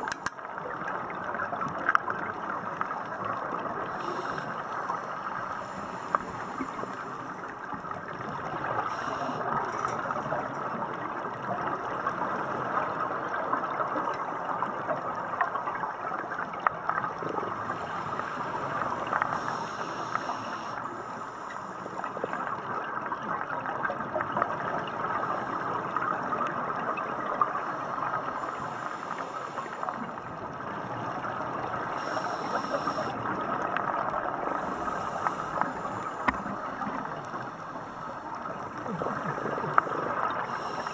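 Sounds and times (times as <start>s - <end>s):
crackling clicks: 0.0s - 0.7s, 4.0s - 10.3s, 32.0s - 37.7s
underwater rushing gurgling water: 0.0s - 40.9s.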